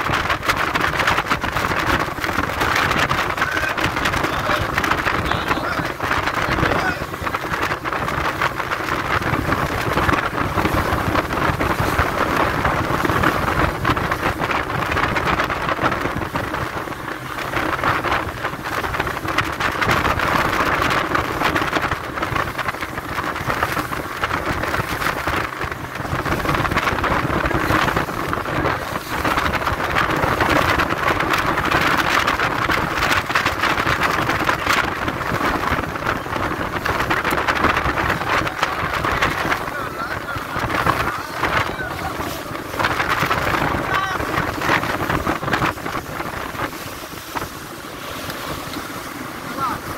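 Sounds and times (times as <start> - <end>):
water hissing off hull: 0.0 - 49.9
wind buffeting microphone: 0.0 - 49.9.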